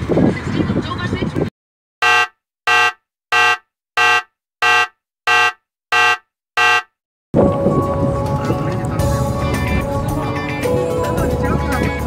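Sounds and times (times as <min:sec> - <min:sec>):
short electronic beeps: 0:02.0 - 0:07.0.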